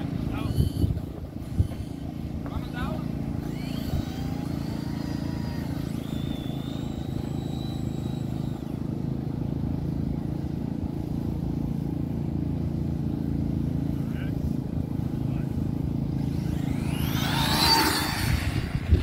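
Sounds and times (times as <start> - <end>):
faint high whine: 0.0 - 12.0, 13.8 - 19.0
low engine-like drone: 0.0 - 19.0.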